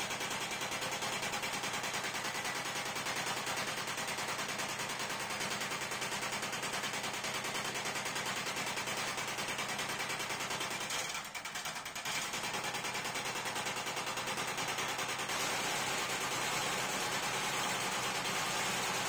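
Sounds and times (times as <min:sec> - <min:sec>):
workshop machine rattling: 0:10.6 - 0:19.0.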